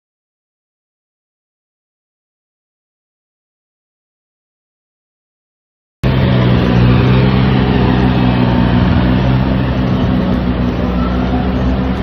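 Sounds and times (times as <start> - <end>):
floor scrubber motor hum: 6.0 - 12.0.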